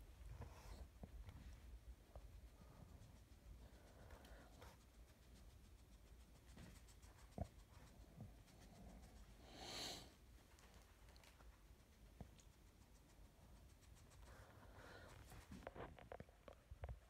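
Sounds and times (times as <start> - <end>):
faint handling noise: 14.5 - 17.0.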